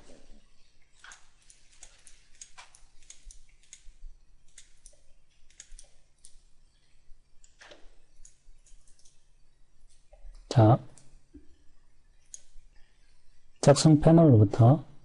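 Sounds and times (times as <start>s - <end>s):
keyboard and mouse clicking: 1.0s - 6.4s, 7.4s - 9.2s.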